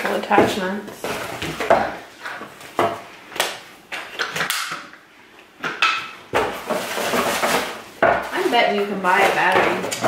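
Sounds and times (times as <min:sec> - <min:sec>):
rustling: 0:06.4 - 0:10.0.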